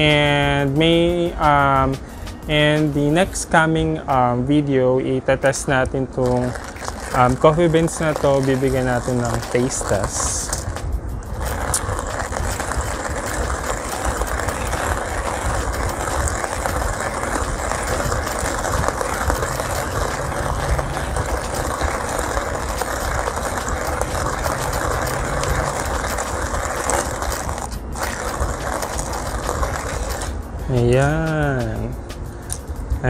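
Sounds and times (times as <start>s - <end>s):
hand coffee grinder grinding beans: 6.2s - 31.4s.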